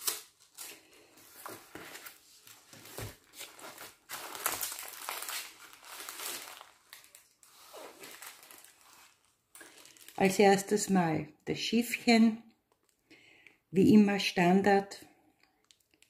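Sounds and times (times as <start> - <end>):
plastic sleeve and canvas crinkling: 0.0 - 10.6.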